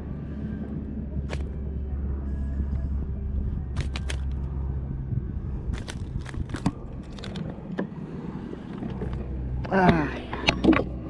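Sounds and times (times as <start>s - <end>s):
steady low rumble: 0.0s - 11.0s
hands handling gear clicks: 3.8s - 4.4s.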